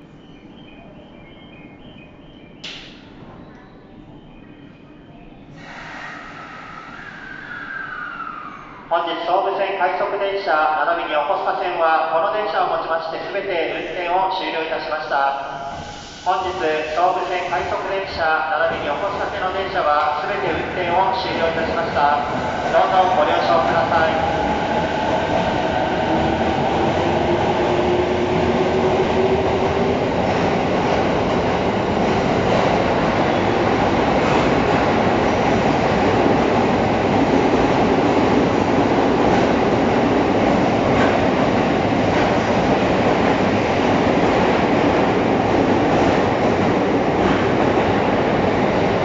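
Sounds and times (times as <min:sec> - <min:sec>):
train cars rumbling: 0:15.6 - 0:49.0.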